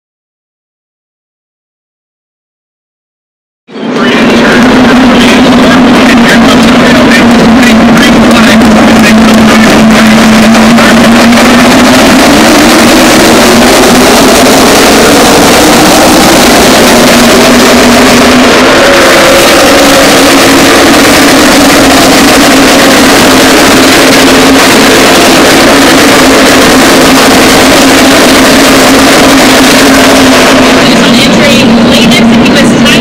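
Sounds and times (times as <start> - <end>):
race car engines droning: 3.7 - 33.0.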